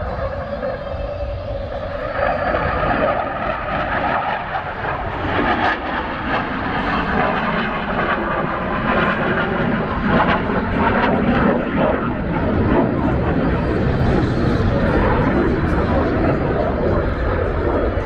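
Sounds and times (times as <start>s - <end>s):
jet engine noise: 0.0s - 18.0s.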